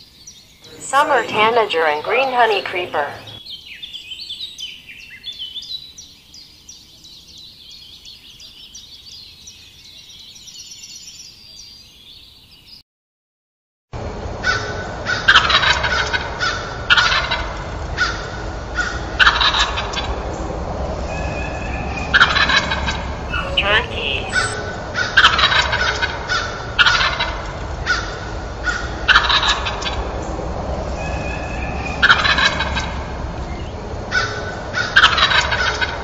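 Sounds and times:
songbirds chirping: 0.0s - 12.8s, 20.3s - 24.6s.

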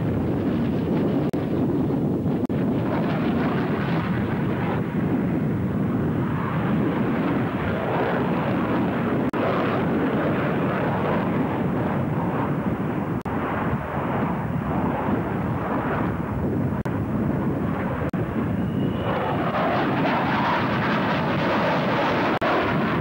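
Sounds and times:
jet fighter engines roaring: 0.0s - 23.0s.

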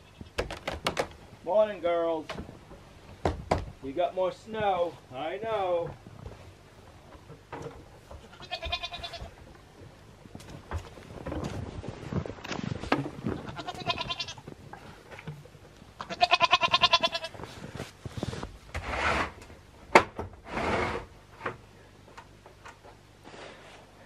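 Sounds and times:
goats bleating: 8.2s - 9.4s, 13.4s - 14.5s, 16.0s - 17.5s.

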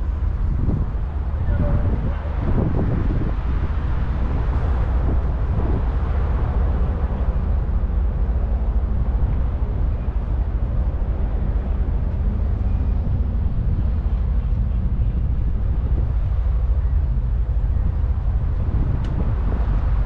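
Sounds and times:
ship engine rumble: 0.0s - 20.0s.

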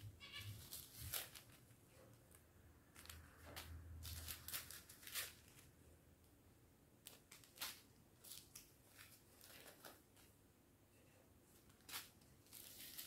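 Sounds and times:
plastic bags crinkling: 0.6s - 1.6s, 2.9s - 5.7s.

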